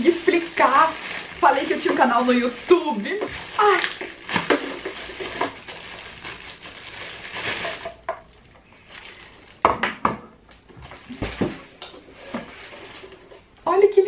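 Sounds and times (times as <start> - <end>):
cardboard and packing rustling: 0.0 - 8.1, 10.7 - 13.5.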